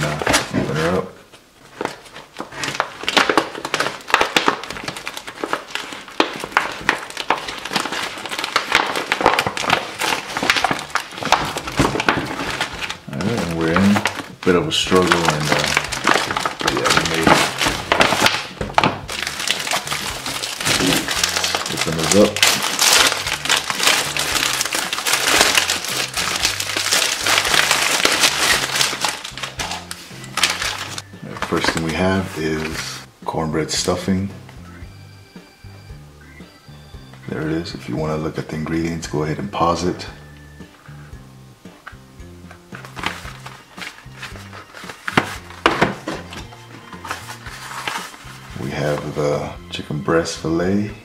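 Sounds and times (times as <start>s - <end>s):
quiet background music: 0.0s - 51.0s
plastic pouch crinkling and tearing: 1.7s - 33.0s, 42.7s - 49.2s.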